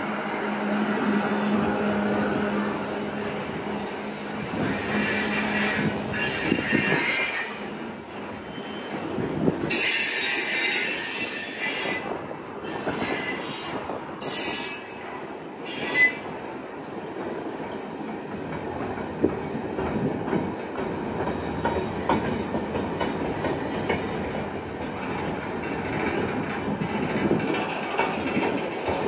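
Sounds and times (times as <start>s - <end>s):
steel wheels squealing on rails: 0.0s - 16.5s, 20.7s - 29.0s.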